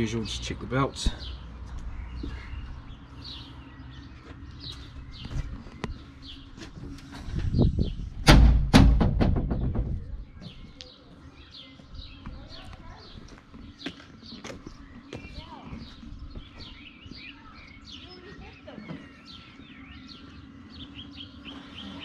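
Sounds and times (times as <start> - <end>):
small birds chirping: 0.0 - 8.2, 9.4 - 22.0
heavy door thuds: 8.2 - 10.5.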